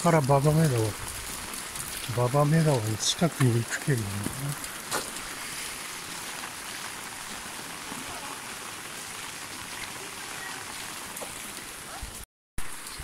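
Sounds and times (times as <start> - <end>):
rain on floodwater: 0.0 - 13.0.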